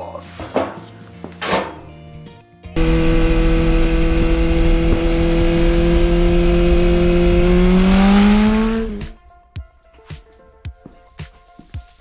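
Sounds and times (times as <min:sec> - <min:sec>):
loud machine hum: 0:02.8 - 0:09.2.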